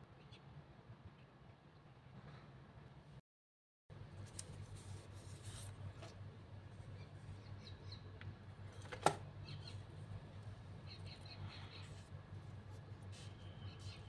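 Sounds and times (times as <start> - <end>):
low steady hum: 3.9 - 14.0.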